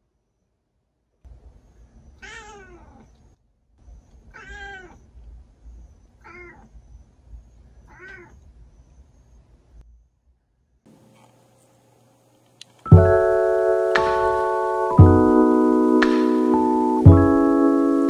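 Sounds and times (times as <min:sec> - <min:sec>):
cat meowing: 0:02.2 - 0:03.3, 0:04.2 - 0:05.1, 0:06.2 - 0:06.8, 0:07.8 - 0:08.4.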